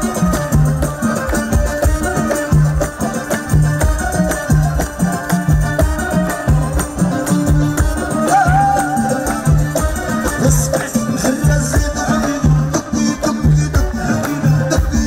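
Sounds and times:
wedding music with hand drums: 0.0s - 15.0s.

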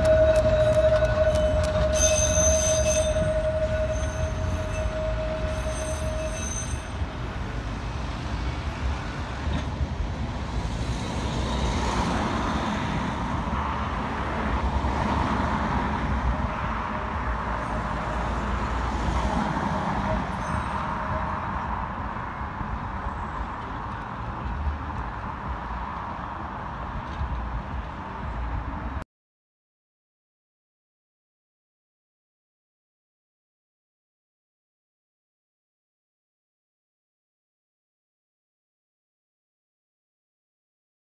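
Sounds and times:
tram motor whine: 0.0s - 14.0s
tram rumbling on rails: 0.0s - 29.0s.

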